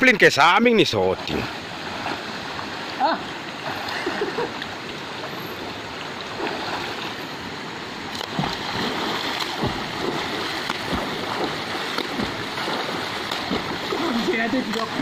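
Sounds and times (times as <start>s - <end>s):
water splashes: 0.0s - 15.0s
river rushing over stones: 0.9s - 15.0s
low thuds: 8.2s - 14.1s.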